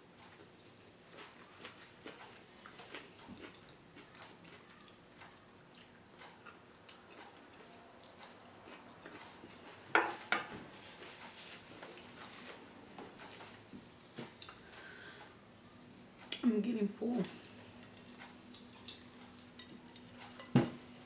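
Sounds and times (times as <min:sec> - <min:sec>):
soft chewing: 0:00.2 - 0:09.9.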